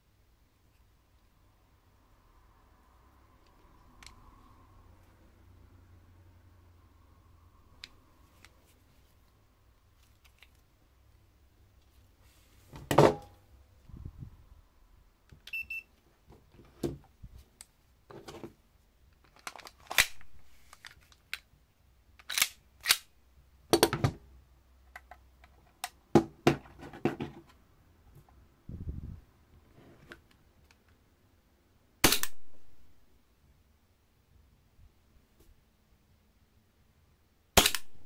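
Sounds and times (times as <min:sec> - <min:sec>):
airsoft pistol shot: 0:32.0 - 0:32.5, 0:37.6 - 0:38.0.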